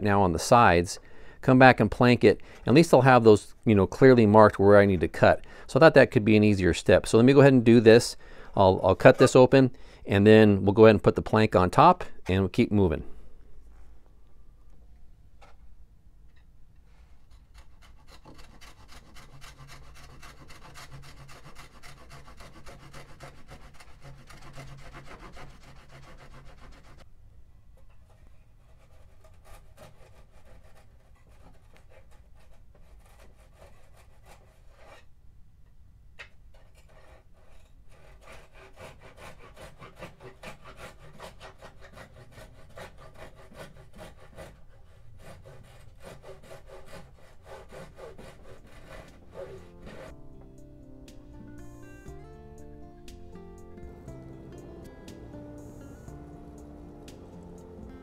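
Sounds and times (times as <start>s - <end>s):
hand saw cutting wood: 17.3s - 27.0s, 28.1s - 35.1s, 36.5s - 50.1s, 53.8s - 58.0s.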